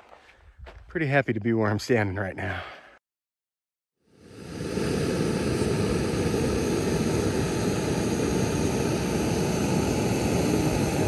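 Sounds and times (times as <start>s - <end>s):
gas stove flame roaring hiss: 4.1s - 11.0s.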